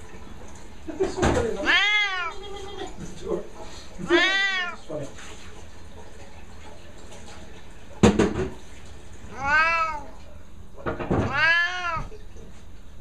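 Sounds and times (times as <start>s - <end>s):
cat meowing: 1.5s - 3.0s, 4.0s - 4.9s, 9.3s - 10.3s, 11.2s - 12.2s.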